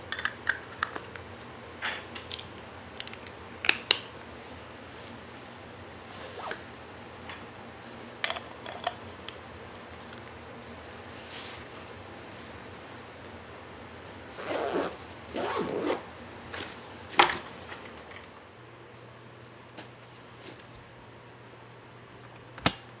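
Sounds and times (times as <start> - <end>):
bag zipper rasping: 14.4 - 16.0.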